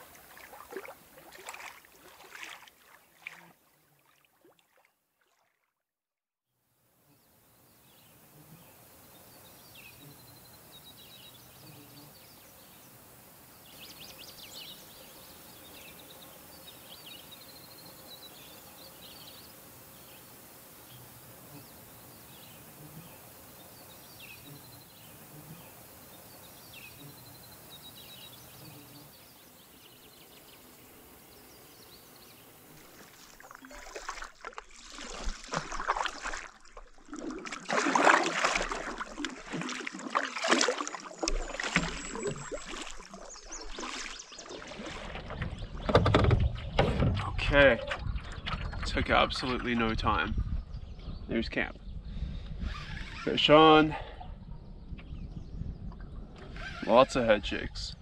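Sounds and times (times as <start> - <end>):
water splashing from paddling: 0.0 - 5.6, 32.7 - 49.8.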